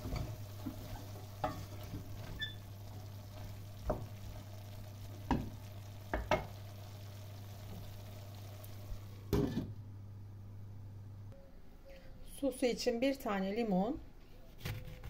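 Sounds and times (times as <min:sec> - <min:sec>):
food sizzling in a pot: 0:00.0 - 0:09.7.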